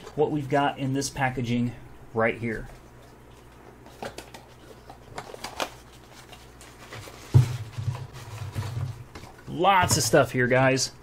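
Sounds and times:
rustling of cardboard and plastic: 3.3s - 10.1s.

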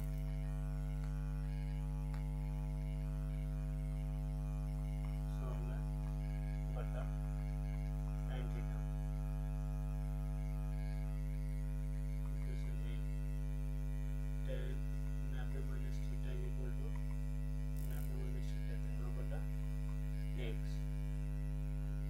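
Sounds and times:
electrical mains hum: 0.0s - 22.0s.

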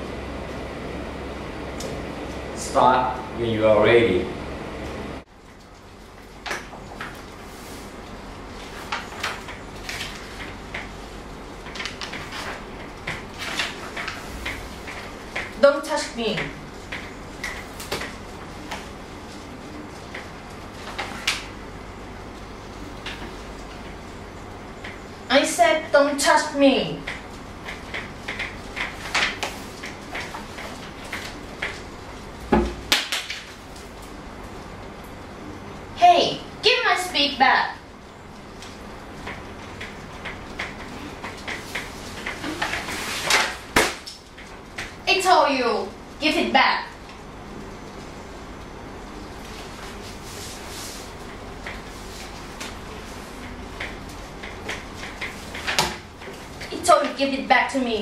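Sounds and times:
paper and book rustling: 6.9s - 15.5s, 16.3s - 21.6s, 26.9s - 31.9s, 38.5s - 45.8s, 49.4s - 58.0s.

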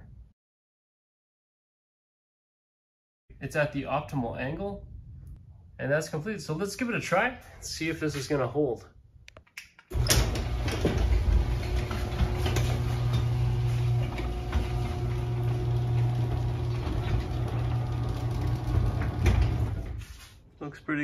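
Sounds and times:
garage door motor hum: 9.9s - 20.2s.

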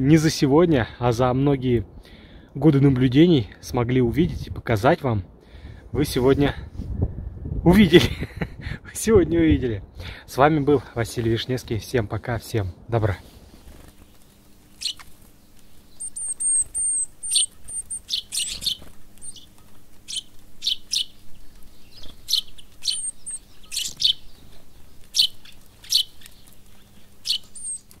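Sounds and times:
small songbirds chirping: 9.6s - 28.0s.

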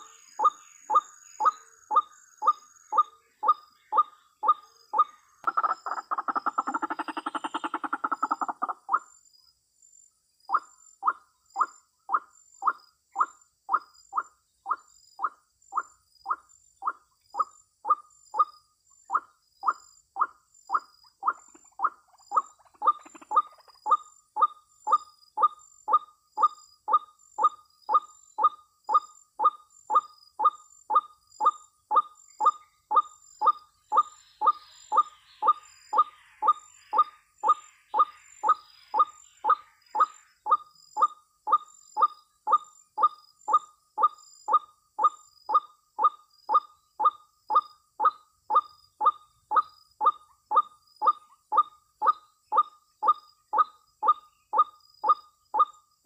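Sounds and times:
bird scratchy chatter: 5.5s - 8.8s, 21.3s - 23.7s.

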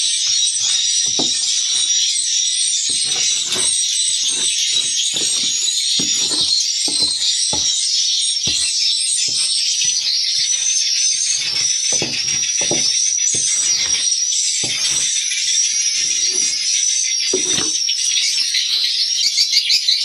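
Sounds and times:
low knocks and scrapes: 0.2s - 1.9s, 2.9s - 7.9s, 8.5s - 10.7s, 11.3s - 15.1s, 17.4s - 17.8s.

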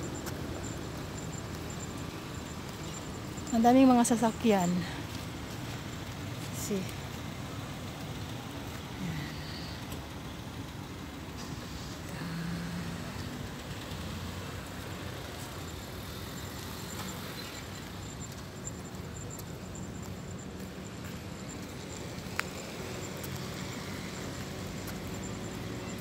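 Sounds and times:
traffic hum: 0.0s - 26.0s
car engine close by: 7.0s - 26.0s.

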